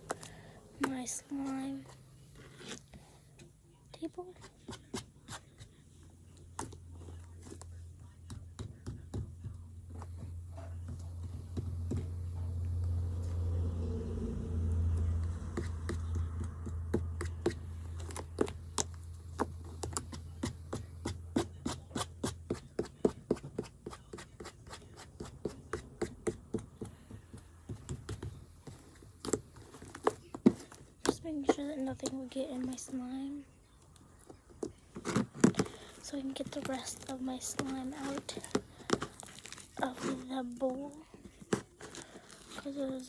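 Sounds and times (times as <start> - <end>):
low steady hum: 5.4 - 22.5.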